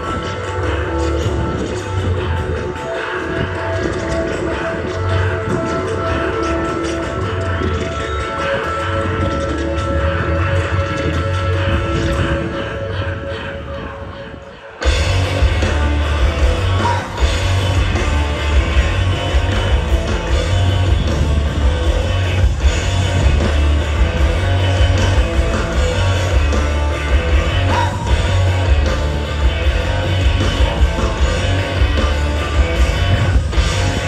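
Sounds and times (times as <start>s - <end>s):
electric guitar: 0.0s - 34.0s
live rock band playing: 0.0s - 34.0s
heavy pulsing bass: 14.8s - 34.0s.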